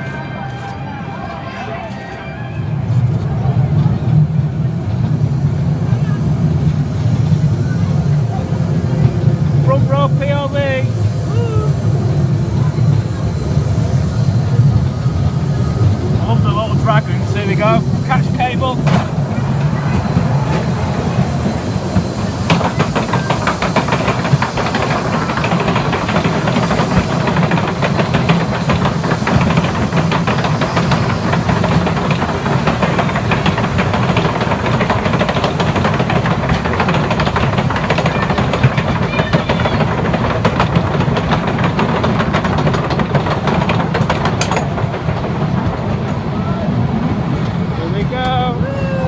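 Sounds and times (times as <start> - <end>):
roller coaster rumbling: 0.0 - 49.0
wheels clacking over rails: 15.3 - 48.6.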